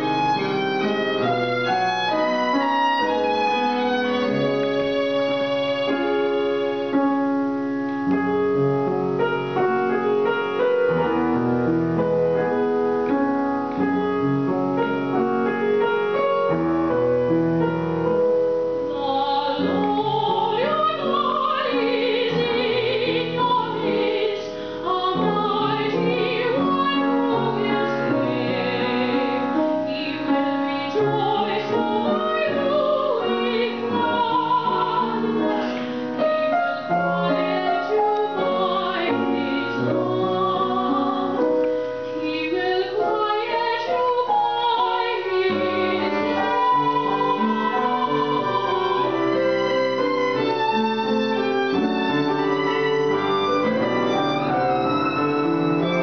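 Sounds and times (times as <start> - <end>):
violin playing: 0.0 - 12.3, 13.0 - 56.0
grand piano: 0.0 - 56.0
woman singing operatically: 18.9 - 41.5, 42.2 - 49.8.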